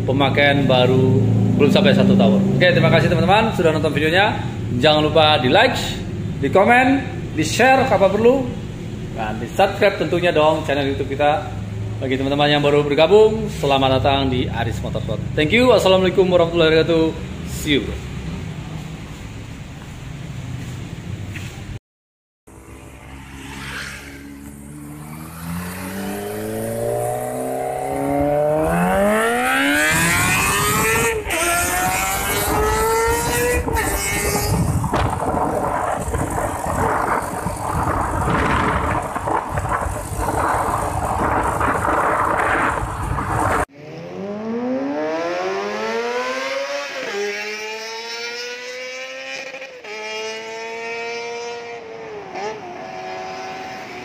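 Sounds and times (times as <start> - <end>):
loud rushing noise: 22.5 - 46.2
motorcycle engine accelerating: 22.5 - 54.0.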